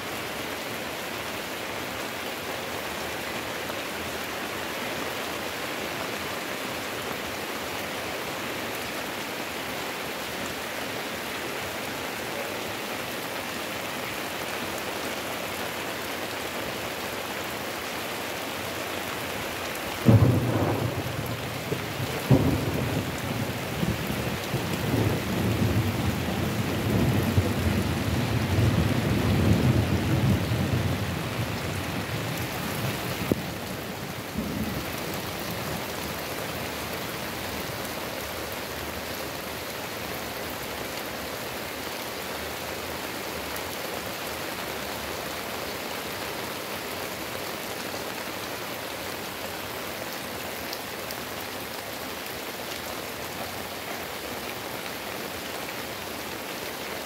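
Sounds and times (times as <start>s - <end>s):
heavy rain pouring: 0.0s - 57.0s
low rumble of thunder: 20.1s - 36.0s.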